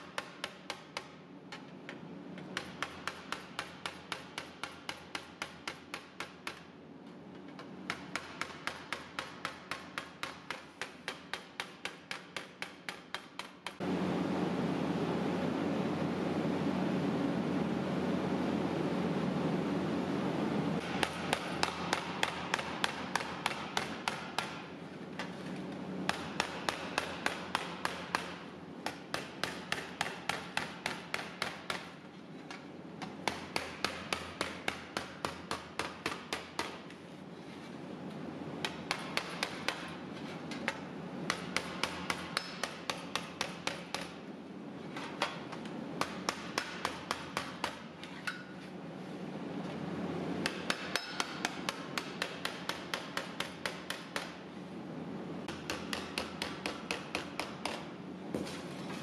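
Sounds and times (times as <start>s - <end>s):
hammer striking sheet metal: 2.6s - 6.7s, 7.9s - 13.8s, 20.8s - 24.8s, 26.1s - 32.0s, 33.0s - 36.8s, 50.4s - 54.4s, 55.4s - 57.9s.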